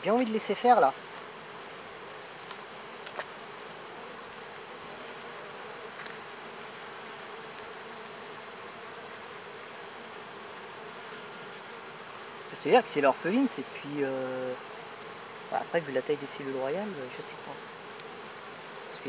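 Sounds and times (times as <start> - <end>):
bees buzzing: 0.0 - 19.0
faint clicks: 7.5 - 8.2.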